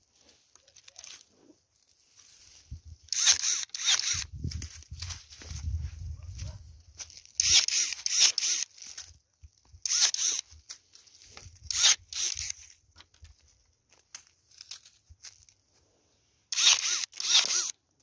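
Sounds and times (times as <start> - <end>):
branches rustling: 0.0 - 16.0
pruning shears snipping: 16.6 - 17.8.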